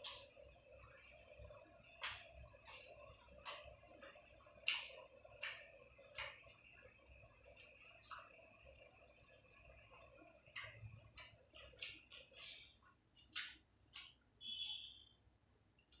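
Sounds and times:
person chewing food: 0.0s - 14.4s
wet mouth clicks and smacks: 0.8s - 6.8s, 10.3s - 14.2s.

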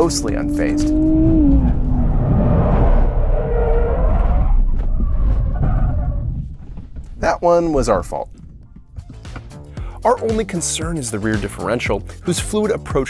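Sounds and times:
car engine: 0.0s - 6.2s.

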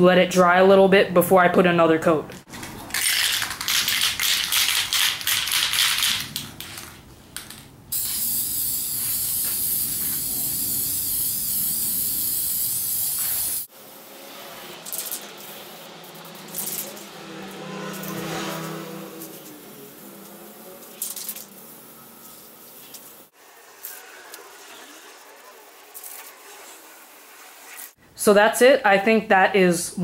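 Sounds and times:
spray can rattling: 2.5s - 13.7s, 14.8s - 17.1s, 19.2s - 23.2s, 25.8s - 26.8s
spray paint hissing: 2.9s - 6.9s, 7.9s - 18.2s, 19.0s - 28.0s.

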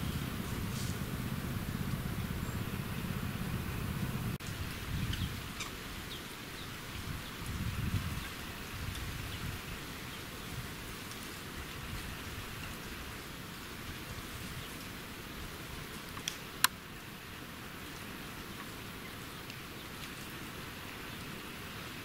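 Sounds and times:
steady rushing noise: 0.0s - 5.9s.

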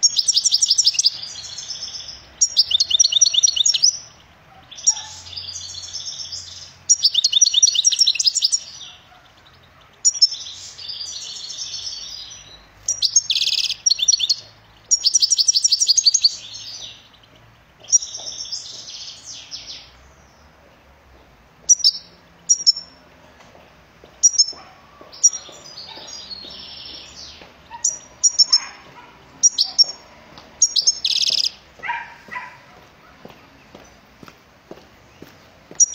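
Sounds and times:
goldfinch singing: 0.0s - 20.4s, 21.7s - 23.0s, 24.0s - 32.6s, 35.1s - 35.9s.

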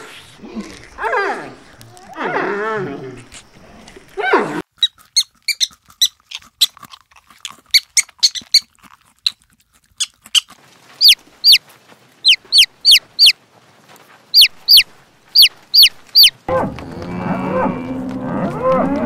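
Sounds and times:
chicks peeping: 10.9s - 11.6s, 12.2s - 13.4s, 14.3s - 16.4s.

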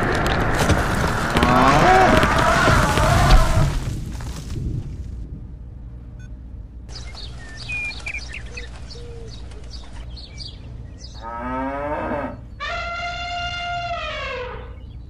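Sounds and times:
cattle mooing: 1.4s - 3.6s, 11.2s - 14.7s
birds chirping: 6.2s - 15.0s.

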